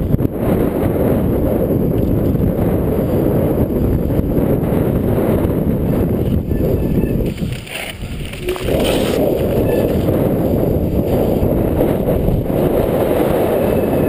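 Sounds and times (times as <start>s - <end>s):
bike tyres rumbling over boardwalk: 0.0s - 14.0s
wind buffeting microphone: 0.0s - 14.0s.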